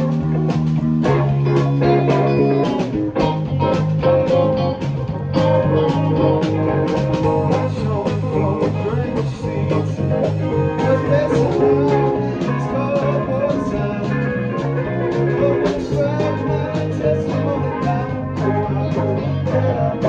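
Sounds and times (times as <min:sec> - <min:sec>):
drums steady beat: 0:00.0 - 0:20.0
electric guitar: 0:00.0 - 0:20.0
fingered electric bass: 0:00.0 - 0:20.0.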